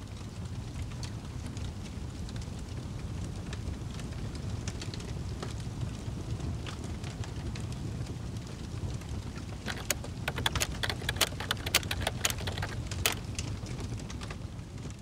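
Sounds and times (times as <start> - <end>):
fire crackling and popping: 0.7 - 10.3.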